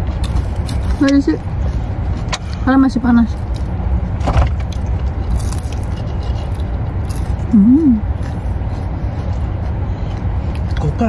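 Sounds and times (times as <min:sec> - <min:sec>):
crunching fried food: 0:00.0 - 0:02.2, 0:03.2 - 0:10.9
person humming: 0:07.5 - 0:08.1.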